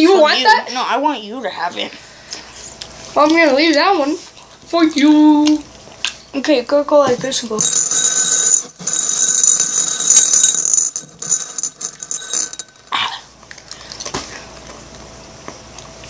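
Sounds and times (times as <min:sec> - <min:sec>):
high electronic ringing tone: 0:07.6 - 0:12.8.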